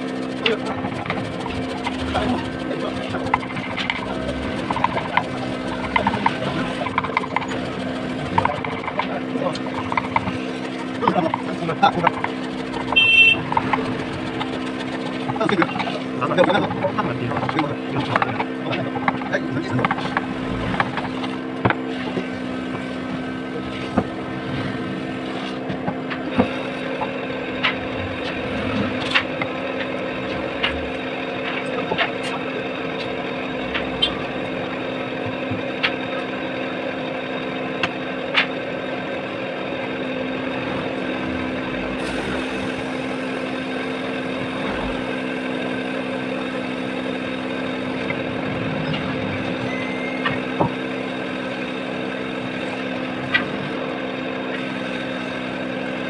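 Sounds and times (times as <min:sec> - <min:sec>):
mallet knocking carving gouge: 0:00.0 - 0:22.2
steady engine-like hum: 0:00.0 - 0:56.0.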